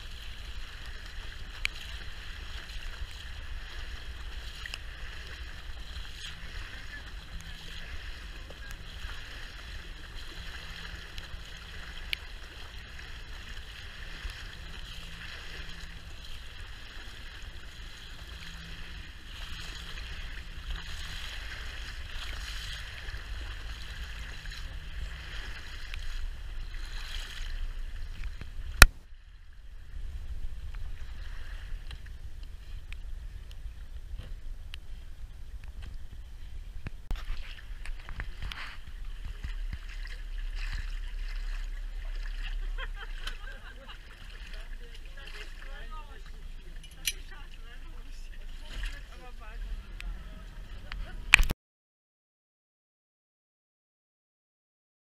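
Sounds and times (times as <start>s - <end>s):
wind on microphone: 0.0s - 41.7s
boat engine rumble: 0.0s - 51.5s
water rushing along hull: 0.0s - 51.5s.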